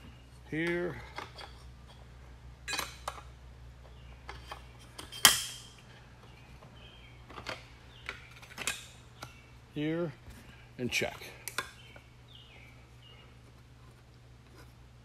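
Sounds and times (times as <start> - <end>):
metal parts clicking and clinking: 2.6 - 3.3, 7.3 - 9.4.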